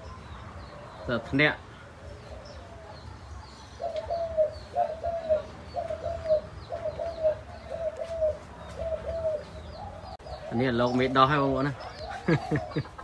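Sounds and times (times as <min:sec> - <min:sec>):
small birds chirping faintly: 0:00.0 - 0:13.0
dove cooing: 0:03.8 - 0:13.0.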